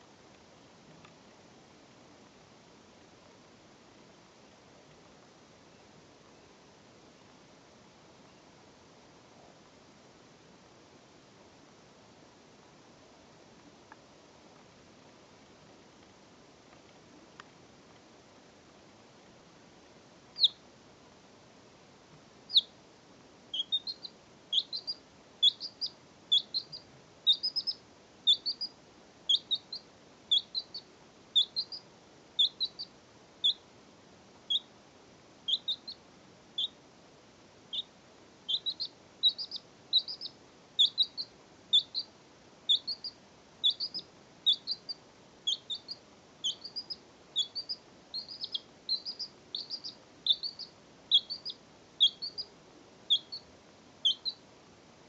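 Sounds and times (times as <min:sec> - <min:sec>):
baby chick peeping: 0:20.3 - 0:20.7, 0:22.5 - 0:22.8, 0:23.5 - 0:33.7, 0:34.4 - 0:34.8, 0:35.4 - 0:36.8, 0:37.7 - 0:54.5.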